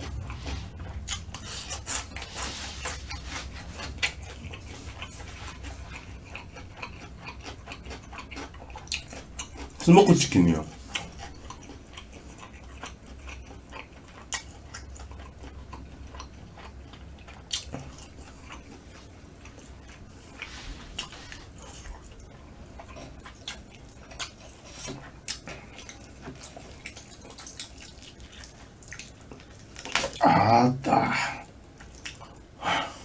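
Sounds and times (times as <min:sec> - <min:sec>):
person chewing close up: 0:00.0 - 0:30.3, 0:31.1 - 0:33.0.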